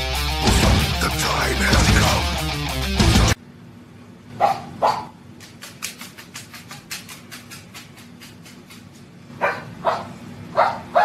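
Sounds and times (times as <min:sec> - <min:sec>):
dog-like barks: 0:04.4 - 0:05.2, 0:09.4 - 0:11.0.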